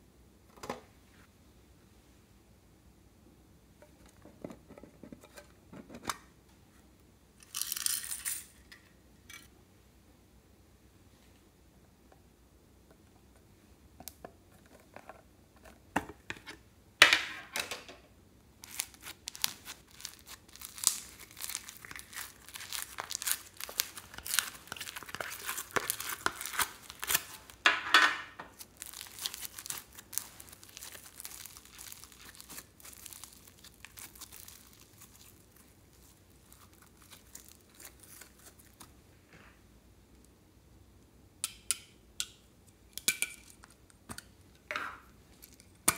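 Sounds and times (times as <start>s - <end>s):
foam bead slime crackling and popping: 18.6s - 27.7s, 28.5s - 38.9s.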